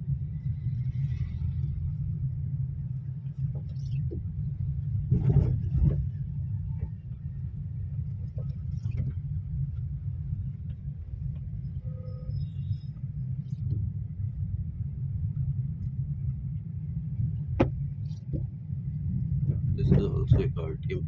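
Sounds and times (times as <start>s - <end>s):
car driving rumble: 0.0s - 21.0s
faint tone: 11.5s - 13.8s.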